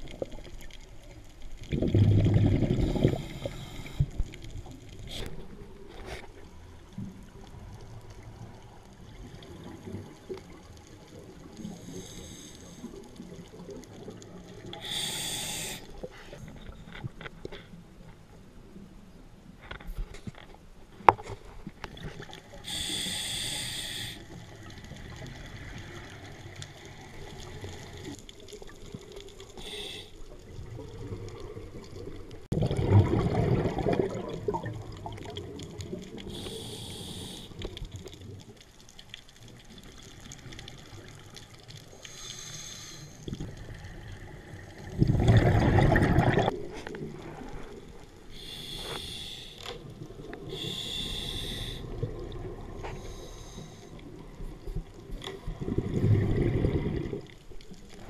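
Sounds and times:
exhaled bubbles rushing: 0:01.6 - 0:03.6, 0:30.4 - 0:36.3, 0:44.6 - 0:47.8, 0:54.9 - 0:57.5
regulator hissing inhalations: 0:14.8 - 0:15.9, 0:22.6 - 0:24.3, 0:29.6 - 0:30.2, 0:36.2 - 0:37.6, 0:42.0 - 0:43.3, 0:48.3 - 0:49.8, 0:50.5 - 0:52.0, 0:52.8 - 0:54.0.

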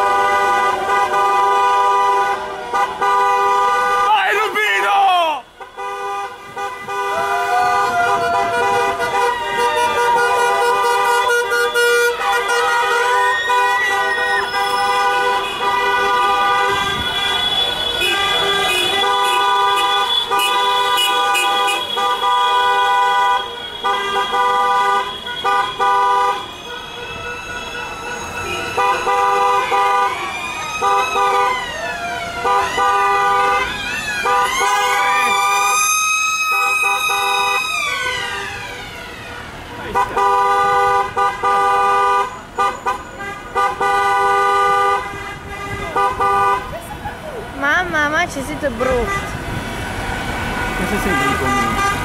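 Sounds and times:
car horns honking: 0:00.0 - 0:35.8, 0:36.4 - 0:46.8, 0:47.6 - 0:52.0
wailing siren-like tone: 0:13.1 - 0:15.0, 0:27.1 - 0:32.9, 0:33.7 - 0:39.6.

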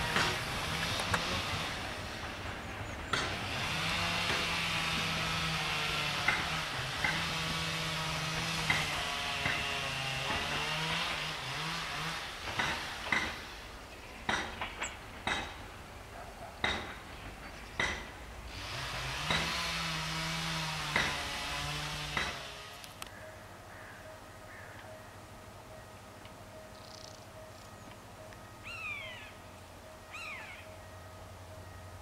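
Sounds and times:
diesel railcar engine hum: 0:00.0 - 0:20.3, 0:21.4 - 0:32.0
wheels clanking over rail joints: 0:00.0 - 0:23.1.

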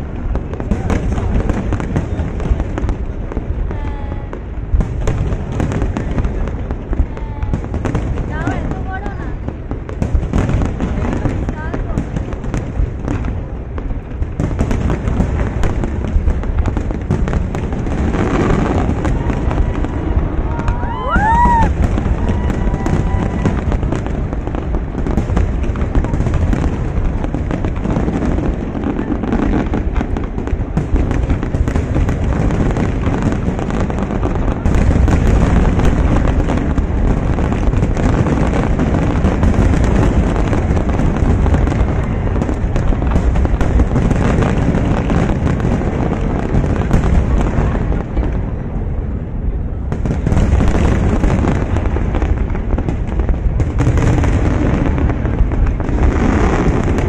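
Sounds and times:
fireworks booming and crackling: 0:00.0 - 0:57.0
firework whistle: 0:18.5 - 0:24.0.

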